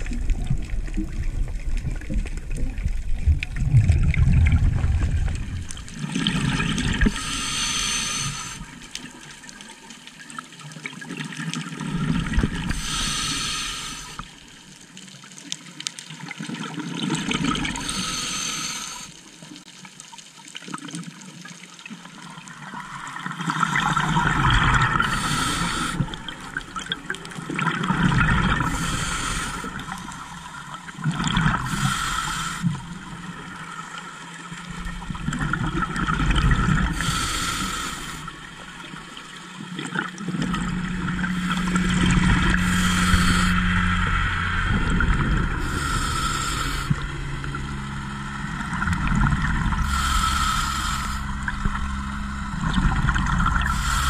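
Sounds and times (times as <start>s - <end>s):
low hum: 0.0s - 9.6s, 22.7s - 54.0s
exhaled regulator bubbles: 0.0s - 14.6s, 16.2s - 19.1s, 22.3s - 54.0s
water rushing: 0.0s - 15.6s, 22.2s - 54.0s.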